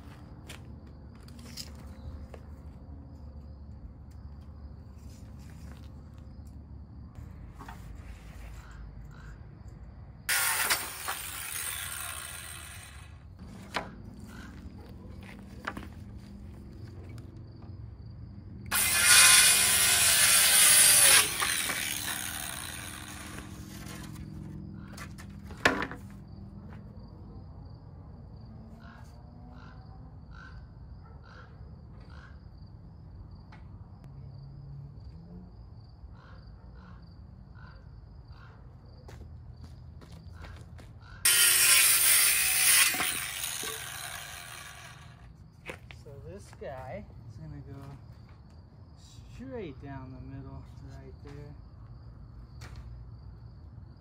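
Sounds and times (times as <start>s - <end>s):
circular saw cutting wood: 10.3s - 14.6s, 18.7s - 24.5s, 41.2s - 45.3s.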